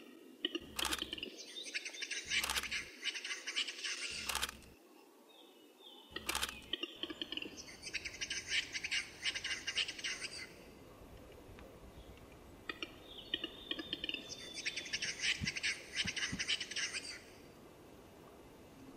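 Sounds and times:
bird sharp clicks: 0.4 - 1.4, 2.2 - 2.9, 6.1 - 7.6, 12.2 - 14.3
bird scraping song: 0.6 - 4.7, 6.1 - 8.6.

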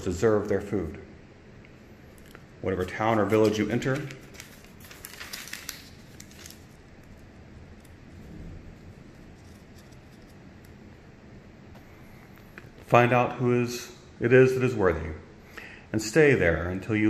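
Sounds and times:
pages turning: 2.1 - 7.2, 8.8 - 10.4.

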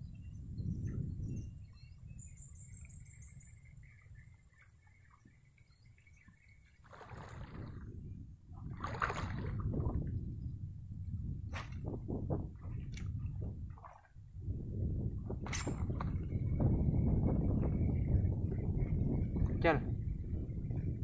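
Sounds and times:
legs wading through water: 2.9 - 7.9, 8.6 - 10.0, 12.5 - 14.4
water sloshing: 6.3 - 7.9, 8.6 - 10.1.

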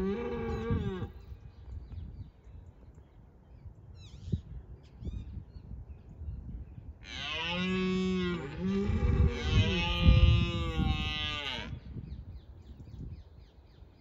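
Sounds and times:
deer stag roaring: 7.1 - 11.7.

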